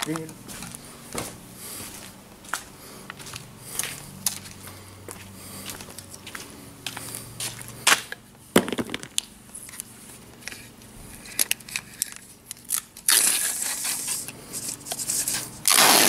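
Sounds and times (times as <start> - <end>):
duct tape tearing: 12.5 - 14.2, 14.9 - 16.0.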